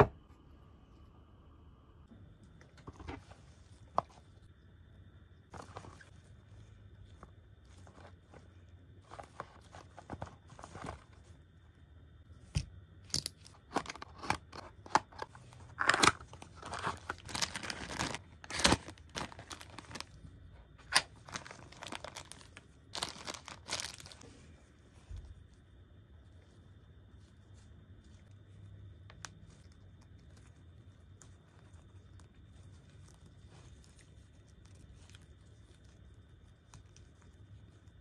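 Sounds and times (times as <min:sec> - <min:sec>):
plastic wrapping crinkling and tearing: 0:13.8 - 0:20.2, 0:20.8 - 0:24.3.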